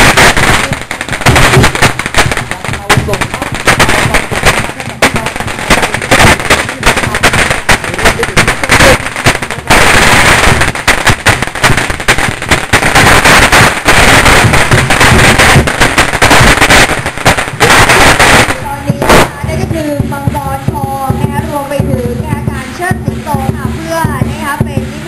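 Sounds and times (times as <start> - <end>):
firecrackers going off: 0.0 - 25.0.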